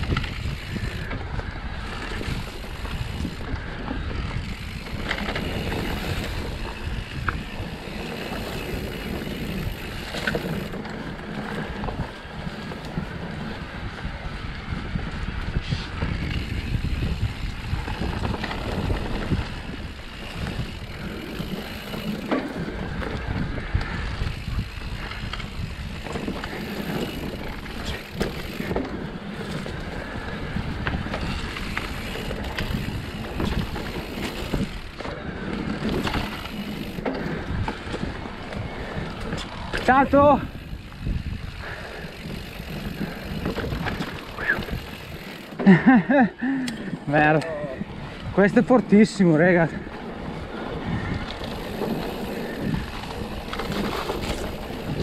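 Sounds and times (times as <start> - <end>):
bike knocking and rattling: 0.0 - 55.0
bike tyres rumbling on dirt: 0.0 - 55.0.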